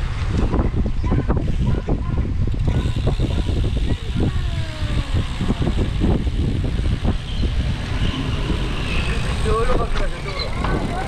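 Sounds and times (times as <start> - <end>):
wind rumbling on microphone: 0.0 - 11.0
bicycle knocks and rattles: 9.4 - 11.0.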